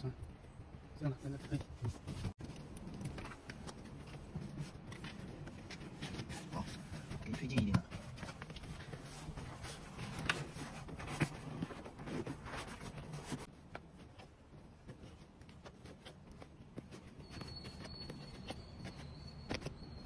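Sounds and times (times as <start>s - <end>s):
seat cover rustling and scraping: 1.8s - 20.0s.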